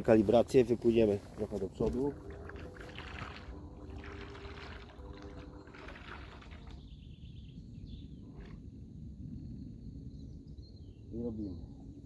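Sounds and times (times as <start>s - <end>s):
low steady rumble: 0.0s - 10.8s
faint motor hum: 1.7s - 6.8s
water churning and splashing: 1.7s - 6.9s.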